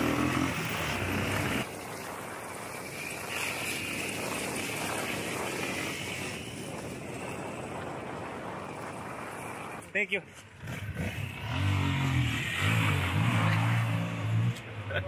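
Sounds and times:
wind rushing on microphone: 0:00.2 - 0:11.6.

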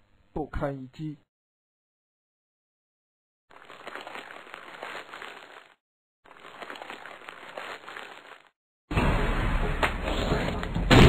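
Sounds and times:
crackling rustling noise: 0:03.5 - 0:08.6.

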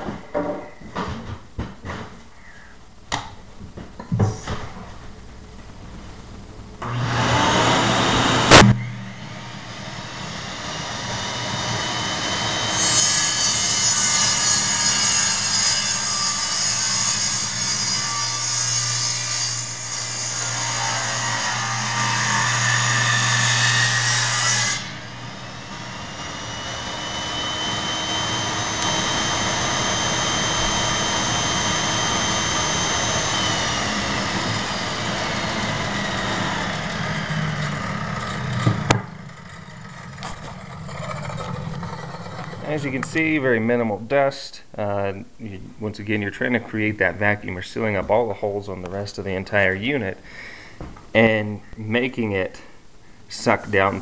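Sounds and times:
shop vac running: 0:03.6 - 0:43.2
saw blade cutting wood: 0:06.8 - 0:43.1
table saw whine: 0:06.8 - 0:43.5.

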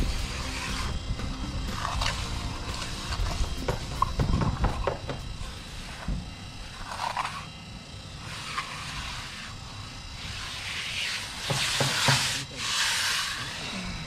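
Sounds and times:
trowel scraping wet cement: 0:00.0 - 0:04.1, 0:06.7 - 0:07.5, 0:08.2 - 0:14.0.

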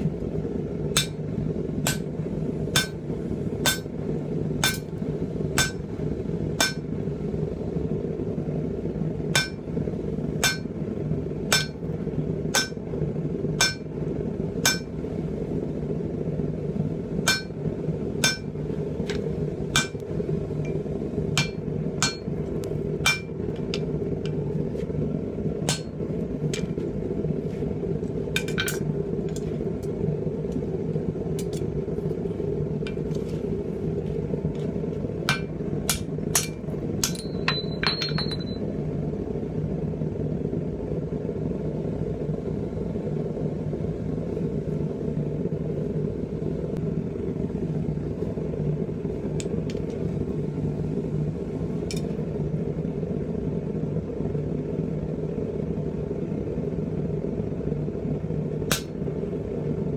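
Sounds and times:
steady low hum: 0:00.0 - 0:59.9
hammer striking steel on anvil: 0:00.9 - 0:02.1, 0:02.7 - 0:04.0, 0:04.6 - 0:04.9, 0:05.6 - 0:05.9, 0:06.6 - 0:06.9, 0:09.3 - 0:09.7, 0:10.4 - 0:10.8, 0:11.5 - 0:11.9, 0:12.5 - 0:12.8, 0:13.6 - 0:13.9, 0:14.6 - 0:15.0, 0:17.2 - 0:17.6, 0:18.2 - 0:20.0, 0:20.7 - 0:22.4, 0:23.0 - 0:24.4, 0:25.6 - 0:26.8, 0:35.2 - 0:38.6, 0:58.7 - 0:59.0.

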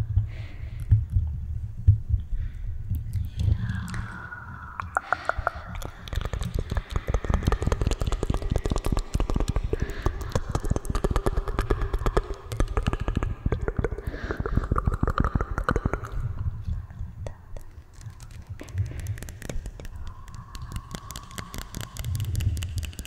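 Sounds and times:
rapid crackling clicks: 0:04.8 - 0:23.0.

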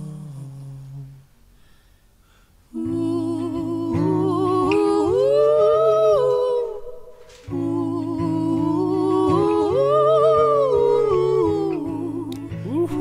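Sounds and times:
man and woman singing in harmony: 0:00.0 - 0:01.2, 0:02.7 - 0:13.0.

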